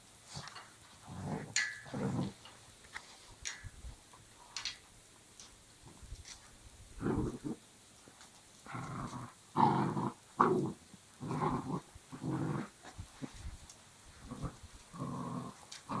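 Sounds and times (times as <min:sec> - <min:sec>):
dog growling: 0:01.0 - 0:02.4, 0:07.0 - 0:07.6, 0:08.7 - 0:12.8, 0:14.2 - 0:16.0.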